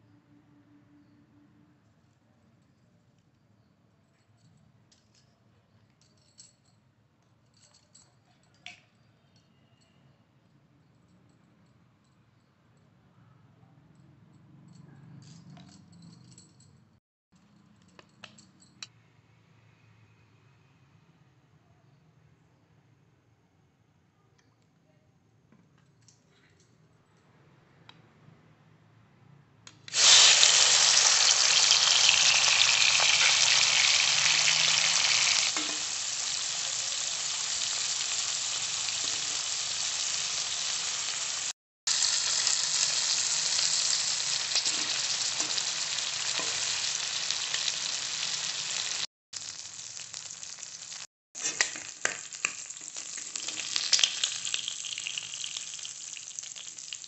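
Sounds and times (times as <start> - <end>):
prawns sizzling in oil: 29.9 - 57.0.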